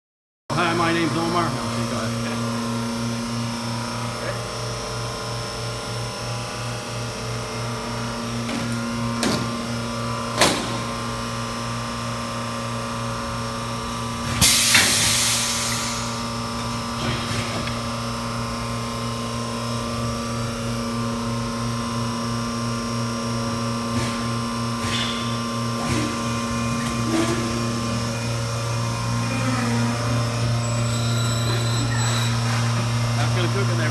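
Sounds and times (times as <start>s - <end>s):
machine electrical hum: 0.5s - 33.9s
hiss of released air: 14.4s - 16.2s.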